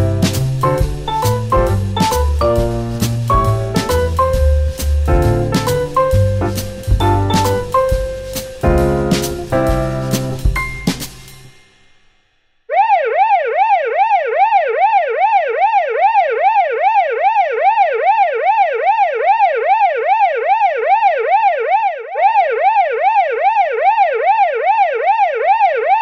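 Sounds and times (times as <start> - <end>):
siren yelping: 12.7 - 26.0.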